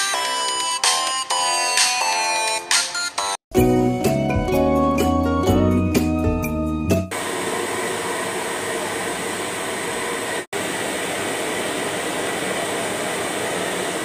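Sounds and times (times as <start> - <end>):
hair dryer blowing: 7.1 - 14.0.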